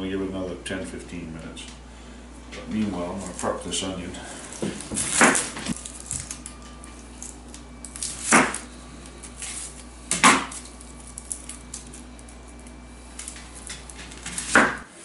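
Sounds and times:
onion skin crackling: 0:04.4 - 0:14.8.

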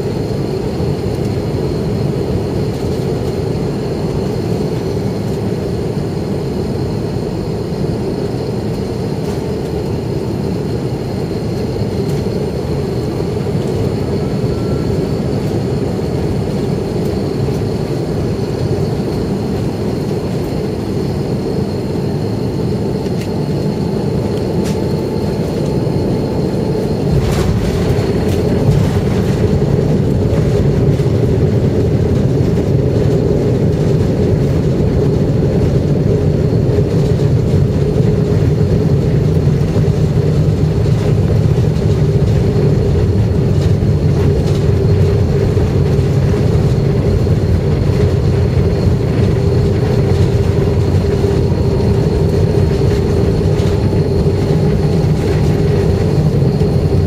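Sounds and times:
deep runway rumble: 0:00.0 - 0:57.0
jet engine and airflow noise: 0:00.0 - 0:57.0.

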